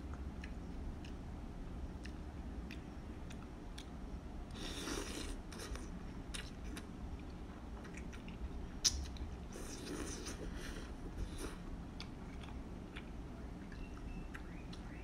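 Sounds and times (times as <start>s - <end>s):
chewing: 0.0s - 1.2s, 1.9s - 15.0s
noodles slurping: 4.6s - 5.9s.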